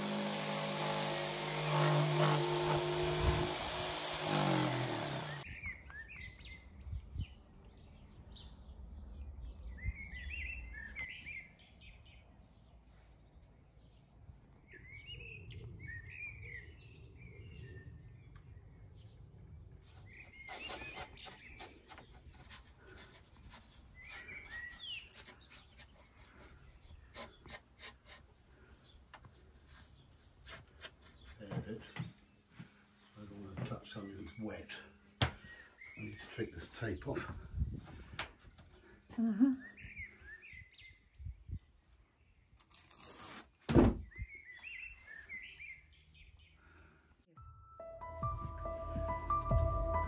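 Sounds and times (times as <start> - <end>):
bird chirp: 5.4 - 28.2, 31.0 - 42.6, 43.5 - 50.0
tape backing tearing: 42.6 - 43.6.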